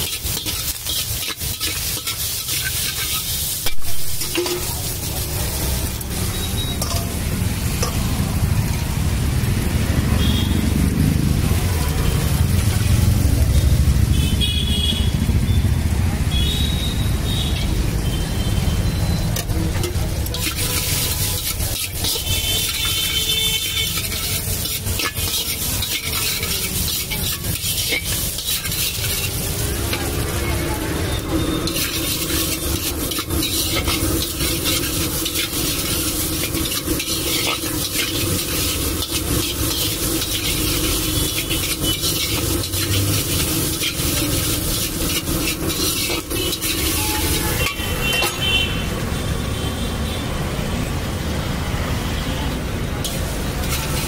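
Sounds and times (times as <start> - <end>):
spatula scraping iron pan: 0.0 - 4.9, 19.8 - 30.2, 31.6 - 48.4
food sizzling in hot oil: 0.0 - 49.1, 52.9 - 54.0.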